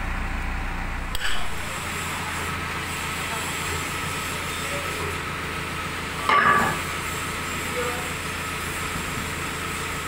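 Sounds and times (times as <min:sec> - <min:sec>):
diesel engine idling: 0:00.0 - 0:10.0
loud metallic clank: 0:01.1 - 0:01.6, 0:06.2 - 0:06.8.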